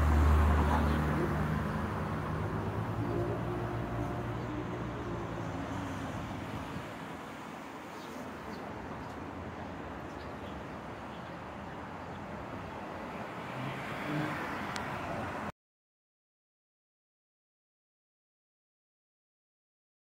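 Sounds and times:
busy road traffic: 0:00.0 - 0:15.5.

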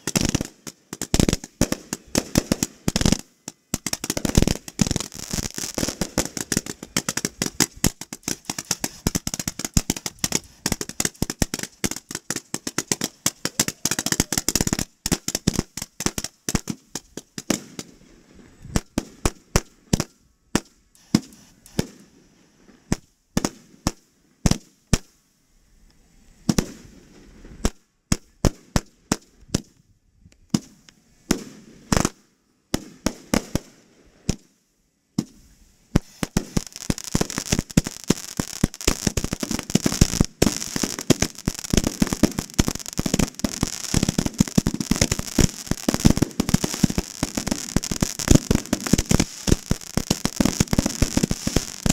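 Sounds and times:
fireworks bangs and crackle: 0:00.0 - 0:25.2, 0:26.4 - 0:29.8, 0:30.5 - 0:34.5, 0:35.1 - 0:51.9.

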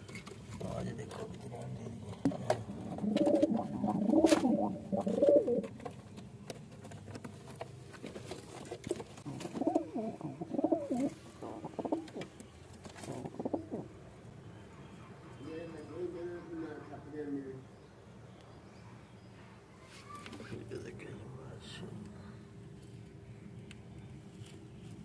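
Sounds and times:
pigeons cooing: 0:01.6 - 0:05.8, 0:09.2 - 0:14.0.

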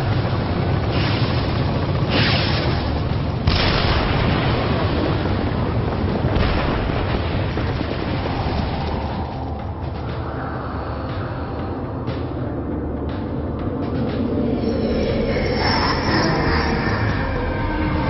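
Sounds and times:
deep rumble: 0:00.0 - 0:18.0
booming explosion effects: 0:03.4 - 0:09.0.

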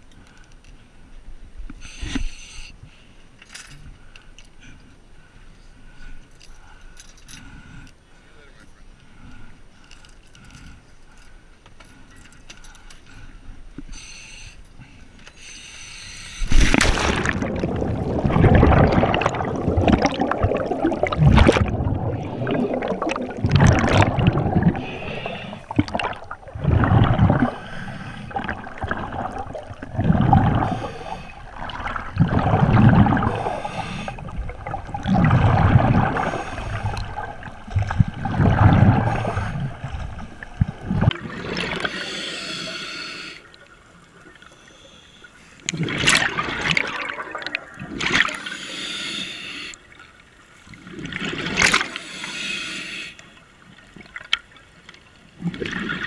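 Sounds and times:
underwater exhaled bubbles gurgling: 0:16.5 - 0:42.8, 0:45.6 - 0:48.6, 0:55.3 - 0:56.0
hissing regulator breaths: 0:33.2 - 0:34.4, 0:41.8 - 0:43.5, 0:48.4 - 0:49.8, 0:51.9 - 0:53.4.

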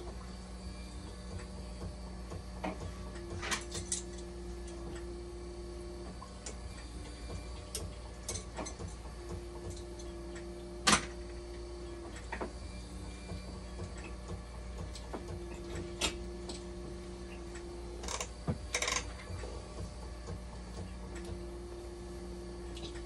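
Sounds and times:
machine low hum: 0:00.0 - 0:23.0
machine clicks and ticks: 0:17.5 - 0:21.4.

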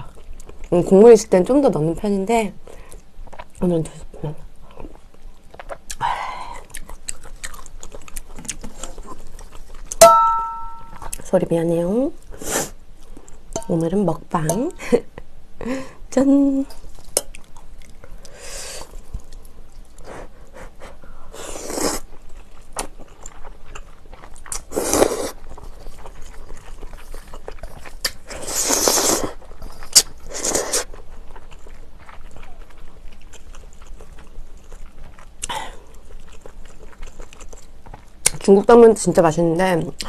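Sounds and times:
chewing: 0:02.7 - 0:03.7, 0:04.6 - 0:11.3, 0:16.7 - 0:38.8
noodles being slurped: 0:28.0 - 0:31.0.

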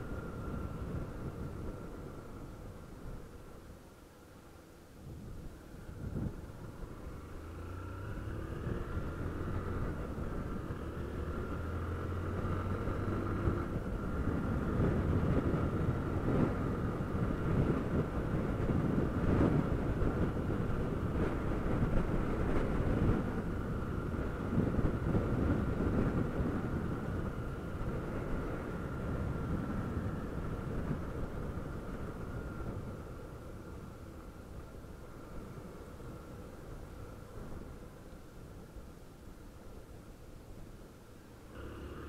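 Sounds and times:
wind noise on microphone: 0:00.0 - 0:03.6, 0:04.9 - 0:39.8
motorcycle engine accelerating: 0:06.0 - 0:34.2, 0:41.5 - 0:42.0.

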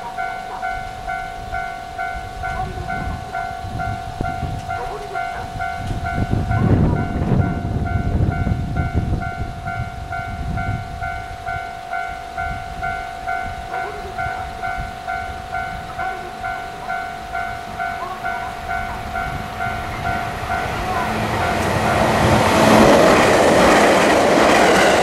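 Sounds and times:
level crossing bell ringing: 0:00.0 - 0:25.0
heavy low rumble: 0:12.4 - 0:25.0.

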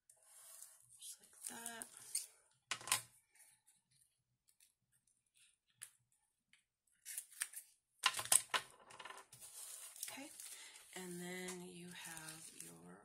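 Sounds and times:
plastic sleeve rustling: 0:09.3 - 0:12.8.

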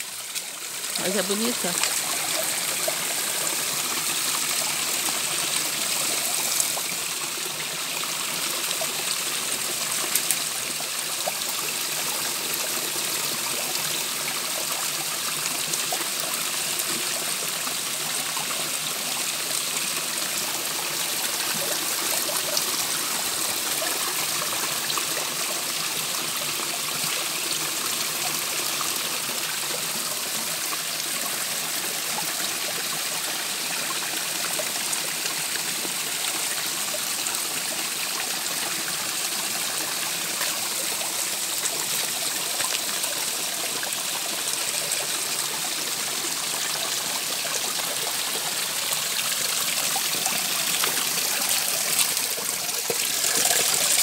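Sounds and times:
water trickling down rock: 0:00.0 - 0:28.4, 0:46.0 - 0:54.0.

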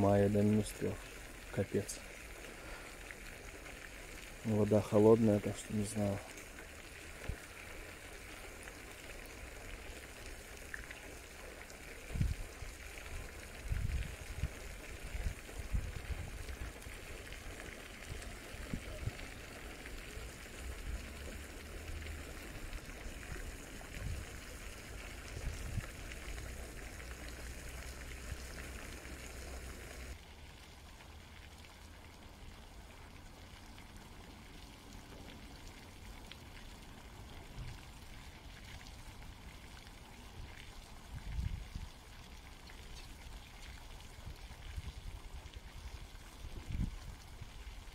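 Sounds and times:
running water rushing: 0:00.0 - 0:47.9.

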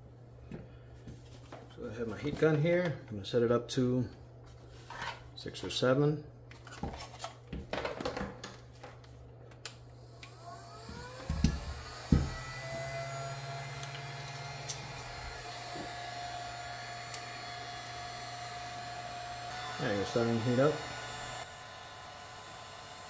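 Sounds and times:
heat gun fan whine: 0:09.5 - 0:23.0.

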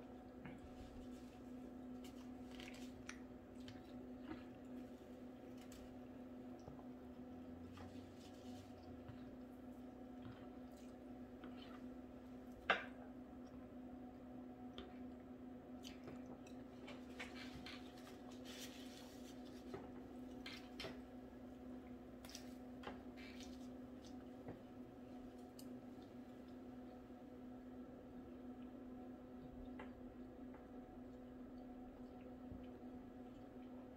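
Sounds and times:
steady low hum: 0:00.0 - 0:33.9
person chewing food: 0:00.1 - 0:07.0.

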